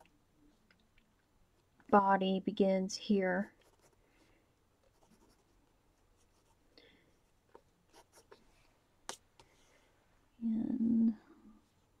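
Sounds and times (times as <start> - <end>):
pencil scratching on paper: 3.5 - 4.0, 4.8 - 5.6, 7.5 - 8.4.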